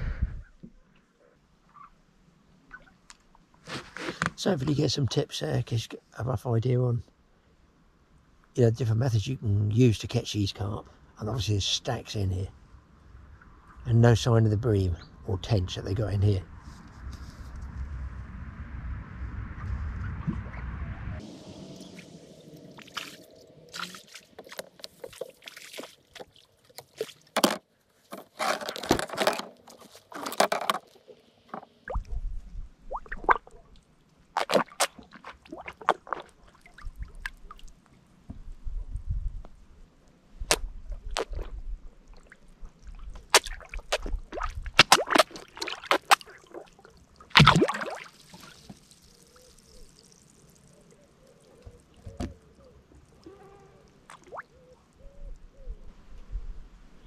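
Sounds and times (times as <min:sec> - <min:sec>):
wind rumble on microphone: 0:00.0 - 0:00.6, 0:16.2 - 0:22.4, 0:31.9 - 0:33.3, 0:38.3 - 0:39.8, 0:55.0 - 0:57.0
fish slurping and splashing: 0:21.2 - 0:27.4, 0:32.9 - 0:37.8, 0:40.9 - 0:54.7.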